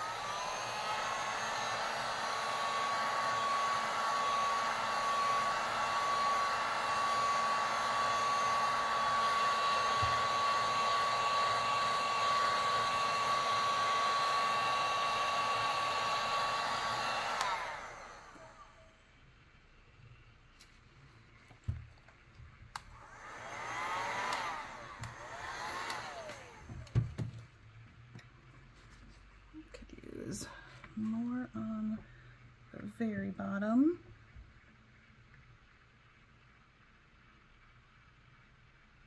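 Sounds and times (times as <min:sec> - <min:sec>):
heat gun blowing with high whine: 0:00.0 - 0:18.9, 0:22.7 - 0:27.3.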